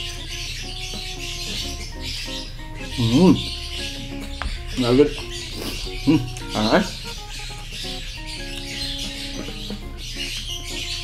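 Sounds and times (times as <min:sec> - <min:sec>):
light background melody: 0:00.0 - 0:11.0.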